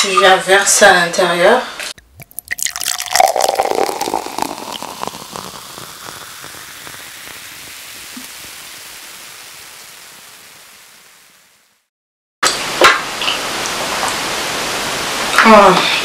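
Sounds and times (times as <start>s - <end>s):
drink being poured: 2.0s - 8.5s
carbonated drink fizzing: 2.0s - 9.8s.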